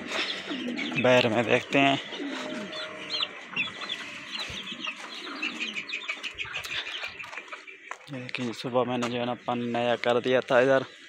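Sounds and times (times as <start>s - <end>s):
chickens clucking: 0.0s - 10.9s
high-pitched bird chirps: 2.0s - 8.0s.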